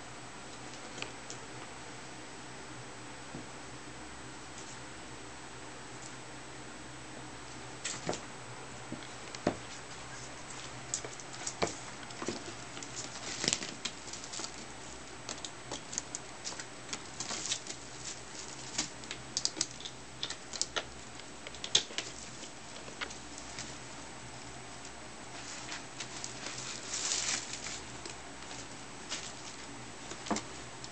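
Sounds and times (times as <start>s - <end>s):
ferret rummaging in cardboard sleeves: 9.4s - 20.8s, 21.6s - 24.0s, 25.3s - 30.7s.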